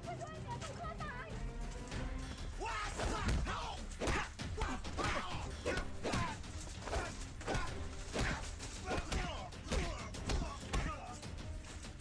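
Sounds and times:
background music: 0.0 - 12.0
punch and kick impacts: 2.9 - 11.0.

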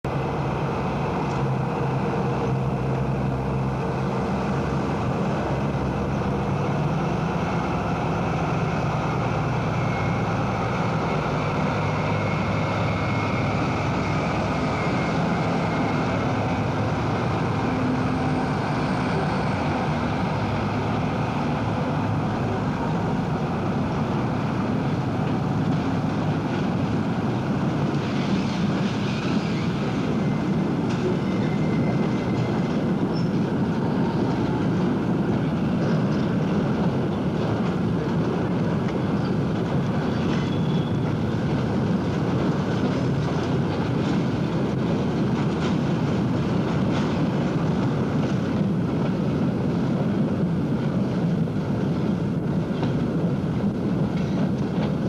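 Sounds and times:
diesel locomotive engines humming: 0.0 - 55.0.

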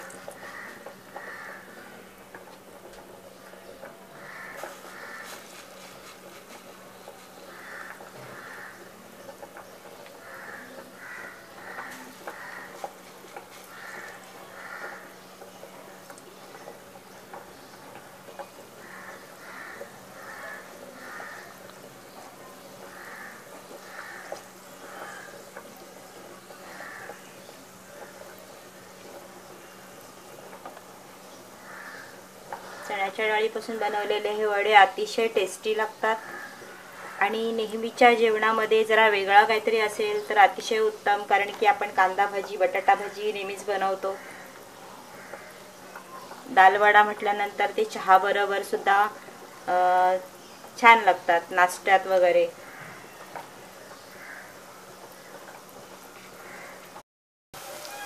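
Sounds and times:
crow cawing: 0.0 - 2.0, 4.2 - 5.5, 7.5 - 8.9, 10.2 - 13.0, 13.7 - 15.2, 18.8 - 21.6, 22.8 - 25.4, 26.6 - 27.3, 31.6 - 33.0, 36.2 - 37.3, 44.1 - 46.3, 52.6 - 54.6, 56.4 - 56.9
oil sizzling: 0.0 - 57.0, 57.6 - 58.0.

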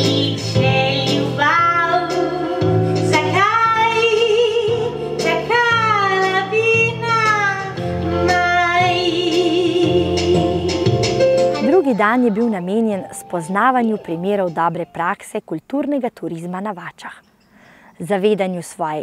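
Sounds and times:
woman singing with vibrato: 0.0 - 15.2
low instrumental chords: 7.8 - 15.2.

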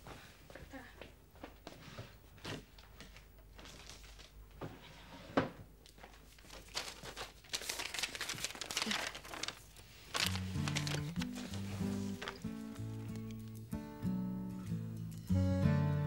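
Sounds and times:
paper rustling and crinkling: 3.1 - 4.4, 5.8 - 13.6.

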